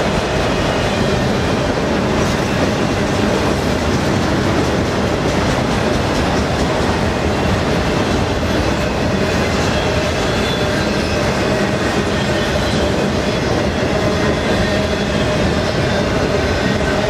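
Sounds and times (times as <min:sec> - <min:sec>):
train wheels rumbling on rails: 0:00.0 - 0:17.0.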